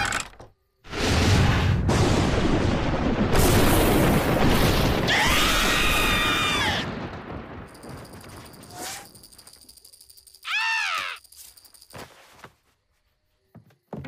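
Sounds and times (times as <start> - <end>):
cartoon rumbling blast: 0.9 - 7.6
cartoon character screaming: 5.1 - 6.9, 10.4 - 11.2.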